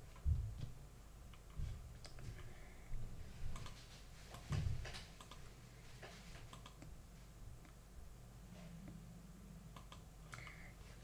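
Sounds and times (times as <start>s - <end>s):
soft low thumps: 0.0s - 0.8s
computer input clicks: 5.2s - 5.4s, 6.4s - 6.9s.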